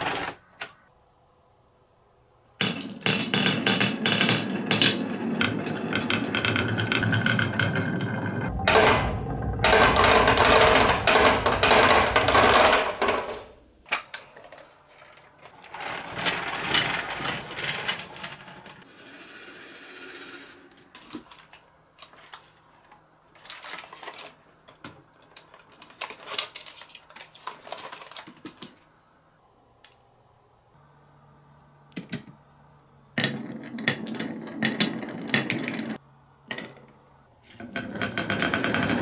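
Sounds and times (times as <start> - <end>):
plastic toys rattling and clicking: 8.6 - 18.9, 20.7 - 28.8, 37.4 - 39.0.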